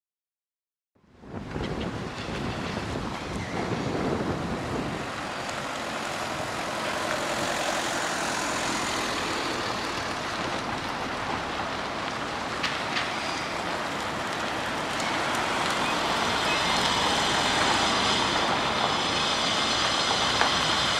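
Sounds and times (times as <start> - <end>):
jet airliner passing overhead: 3.3 - 11.6, 13.0 - 20.9.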